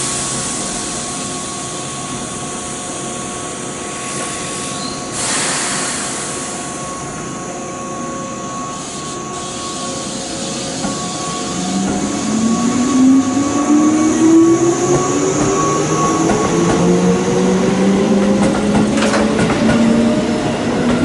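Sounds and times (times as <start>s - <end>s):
train equipment hum: 0.0s - 21.0s
air hiss: 3.9s - 6.8s.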